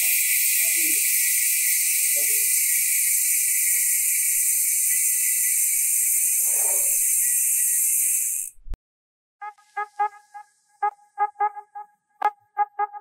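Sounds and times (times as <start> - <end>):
bicycle freehub buzzing: 0.0 - 8.6.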